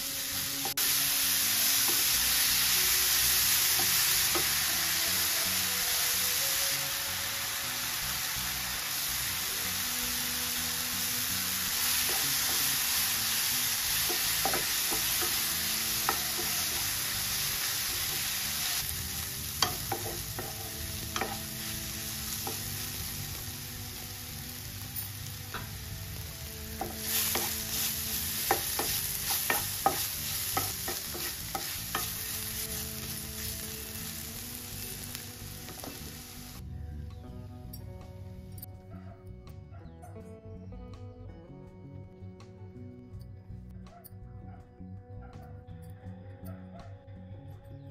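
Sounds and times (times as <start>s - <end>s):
vegetables sizzling in oil: 0.0s - 36.6s
spatula scraping a pan: 26.7s - 33.7s.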